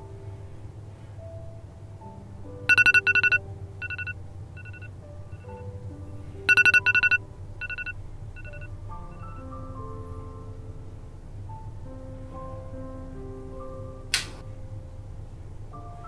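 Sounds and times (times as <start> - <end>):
soft background music: 0.0 - 16.0
phone alarm rapid high beeps: 2.7 - 5.6, 6.5 - 9.4.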